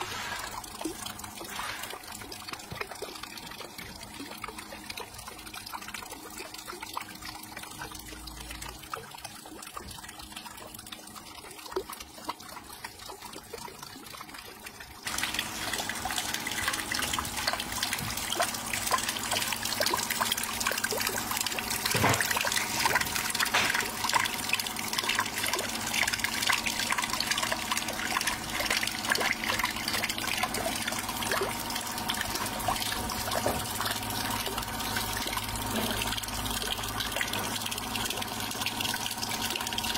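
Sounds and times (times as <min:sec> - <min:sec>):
hose water splashing on water wheel: 0:00.0 - 0:08.0, 0:08.6 - 0:39.9
water trickling: 0:00.0 - 0:39.9.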